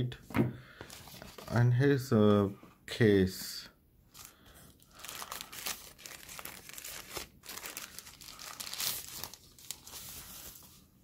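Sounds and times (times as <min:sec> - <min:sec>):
plastic sleeve crinkling: 0:04.1 - 0:10.8.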